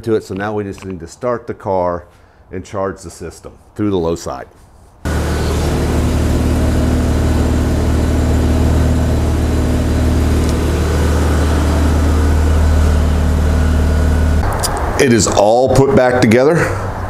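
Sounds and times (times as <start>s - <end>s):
rotary engine idling: 5.1s - 14.4s.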